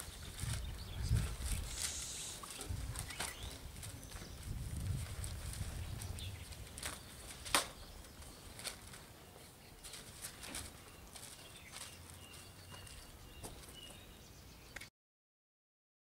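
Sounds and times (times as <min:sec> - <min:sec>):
newspaper pages rustling: 0:00.0 - 0:13.7.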